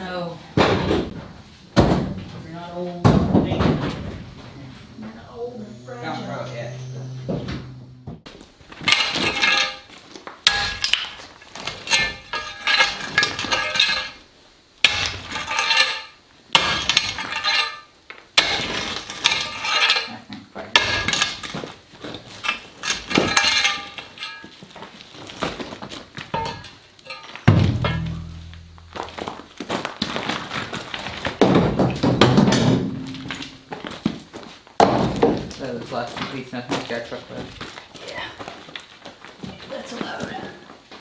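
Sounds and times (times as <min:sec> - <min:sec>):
concrete chunks clattering: 0:08.7 - 0:14.2, 0:14.9 - 0:20.1, 0:20.8 - 0:39.5
shovel scraping through rubble: 0:08.8 - 0:14.2, 0:14.9 - 0:20.1, 0:20.8 - 0:24.7.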